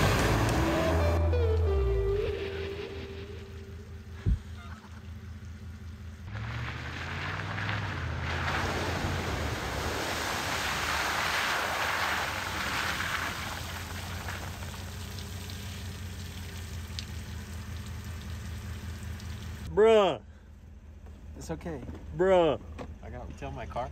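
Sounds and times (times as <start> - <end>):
pickup truck engine: 0.0 - 23.9
tyres hissing on wet slush: 8.6 - 16.8.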